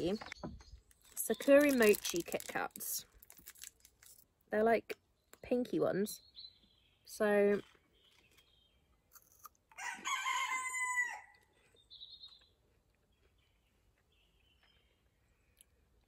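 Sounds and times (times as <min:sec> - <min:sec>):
chicken crowing: 0:09.7 - 0:11.5.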